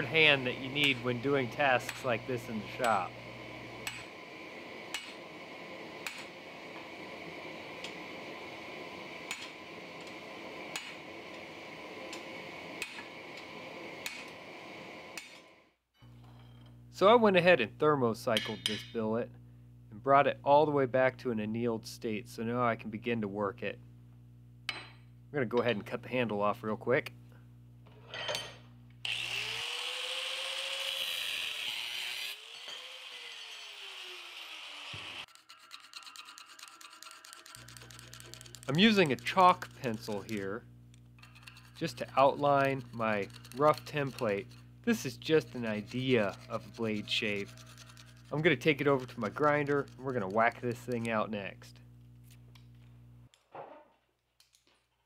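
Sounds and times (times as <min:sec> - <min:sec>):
angle grinder cutting steel: 0:00.0 - 0:04.1, 0:29.0 - 0:40.5, 0:41.2 - 0:51.1
gas forge burner hissing: 0:00.0 - 0:15.4, 0:38.1 - 0:40.7, 0:41.5 - 0:51.7
hammer striking steel on anvil: 0:00.8 - 0:01.1, 0:01.8 - 0:02.1, 0:02.8 - 0:03.1, 0:03.8 - 0:04.1, 0:04.9 - 0:05.2, 0:06.0 - 0:06.3, 0:18.4 - 0:19.0, 0:24.7 - 0:25.1.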